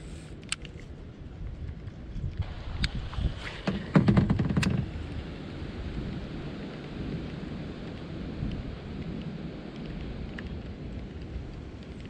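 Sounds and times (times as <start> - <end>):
wind buffeting microphone: 0.0 - 12.0
faint ticks: 6.7 - 12.0.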